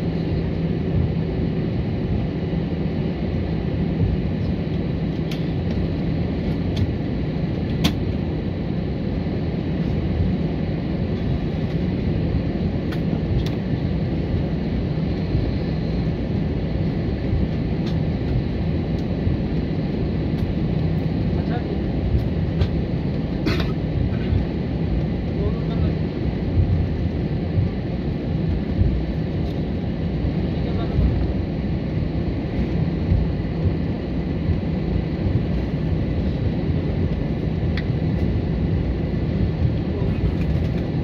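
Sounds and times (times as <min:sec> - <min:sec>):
low hum: 0:00.0 - 0:41.0
vehicle interior rumble: 0:09.9 - 0:41.0.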